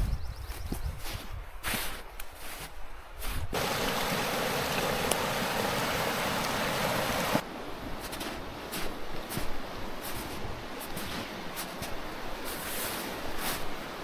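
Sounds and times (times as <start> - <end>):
stream water rushing: 3.6 - 14.0.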